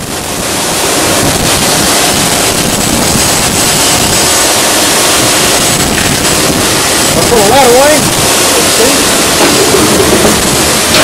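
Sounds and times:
screw compactor running: 8.5 - 11.0.

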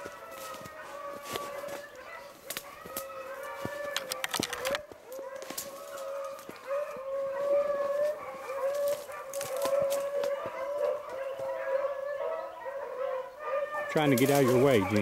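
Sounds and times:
hounds baying: 0.0 - 15.0.

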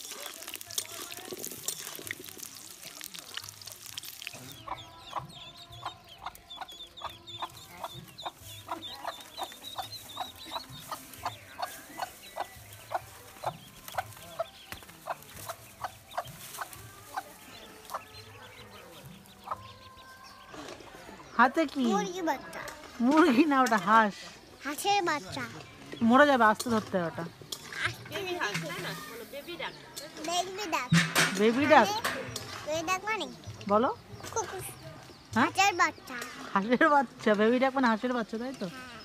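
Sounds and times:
potatoes sizzling in oil: 0.0 - 4.7
ducklings peeping: 4.1 - 21.4
hen clucking: 4.2 - 21.0.

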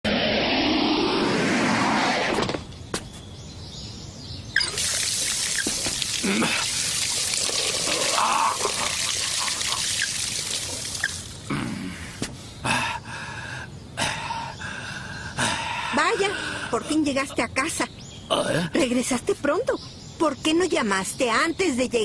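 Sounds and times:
water-like hiss: 4.6 - 11.4.

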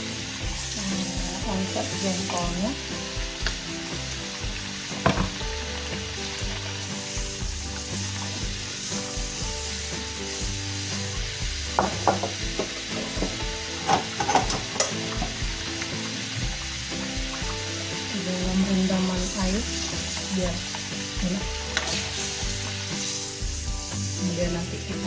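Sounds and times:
oil sizzling in a wok: 0.0 - 25.0
metal utensil scraping a wok: 19.4 - 24.9.

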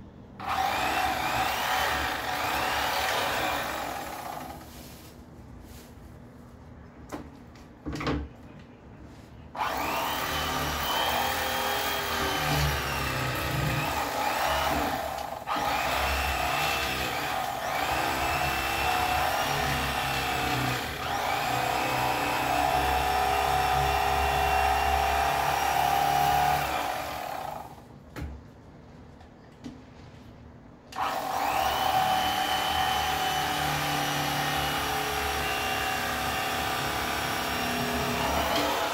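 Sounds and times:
electric knife motor buzzing: 31.0 - 34.1.

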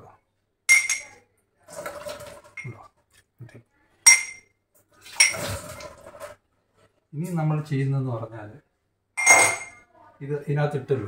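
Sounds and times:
kitchen vessel clinking: 0.7 - 1.2, 4.1 - 4.5, 5.2 - 5.9, 9.2 - 9.8.

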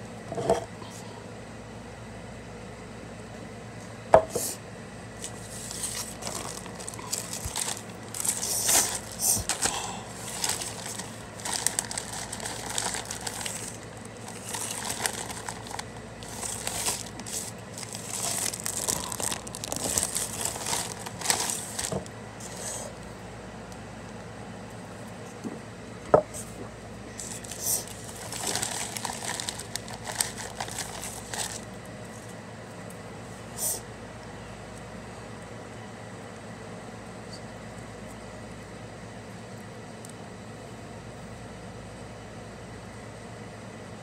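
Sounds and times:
plastic packaging crinkling: 5.2 - 22.1, 27.2 - 32.4.

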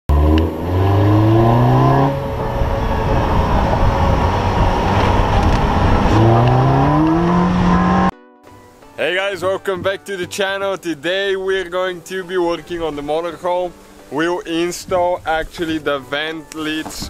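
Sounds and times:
car engine accelerating: 0.1 - 8.1
road noise rushing: 0.1 - 8.1.

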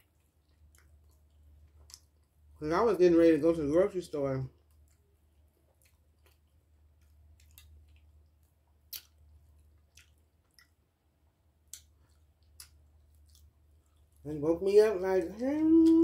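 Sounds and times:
quiet chewing: 0.0 - 2.6, 4.5 - 14.3
low steady hum: 0.0 - 16.0.

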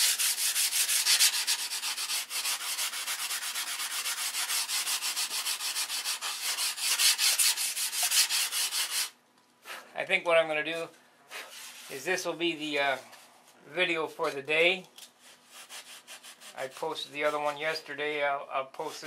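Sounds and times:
sandpaper rubbing on wood: 0.0 - 9.2, 11.4 - 12.3, 15.2 - 17.8.

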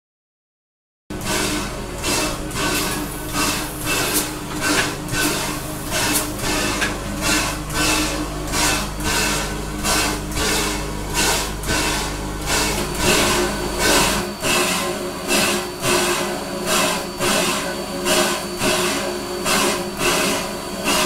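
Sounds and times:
steady low hum: 1.1 - 16.7
steam air pump hissing: 1.2 - 21.0.

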